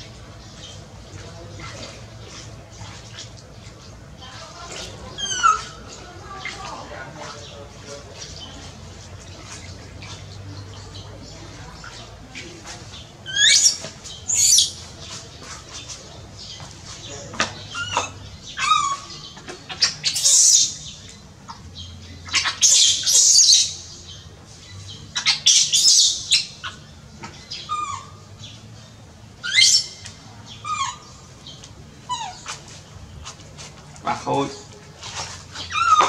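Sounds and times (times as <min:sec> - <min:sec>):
baby monkey screaming: 0:05.2 - 0:05.8, 0:13.3 - 0:14.7, 0:17.7 - 0:19.2, 0:19.8 - 0:20.8, 0:22.3 - 0:23.7, 0:27.7 - 0:28.2, 0:29.4 - 0:30.0, 0:30.6 - 0:31.1, 0:35.6 - 0:36.0.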